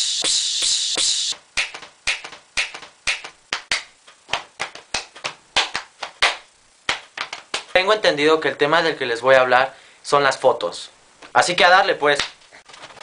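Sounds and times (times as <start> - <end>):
loud hiss: 0.0 - 1.4
sharp taps or claps: 1.0 - 7.8, 12.2 - 12.4.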